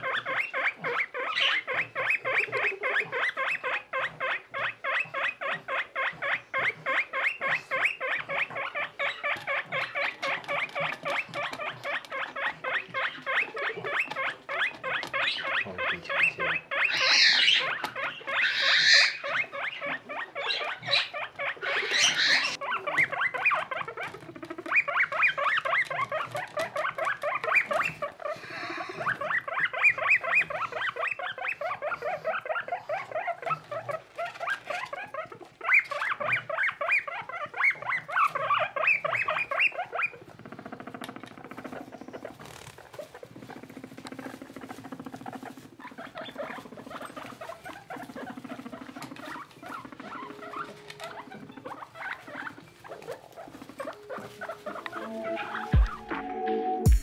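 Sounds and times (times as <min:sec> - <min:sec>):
guinea pigs squeaking: 0:00.0 - 0:57.0.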